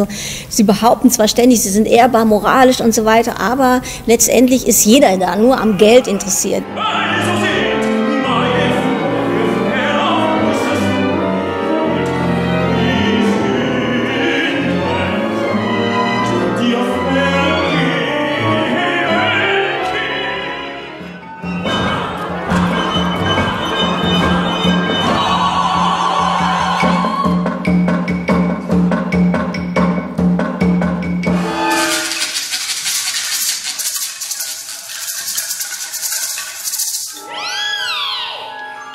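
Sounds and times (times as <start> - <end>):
opera singing with orchestra: 5.4 - 27.5
shaken percussion rattle: 31.4 - 37.2.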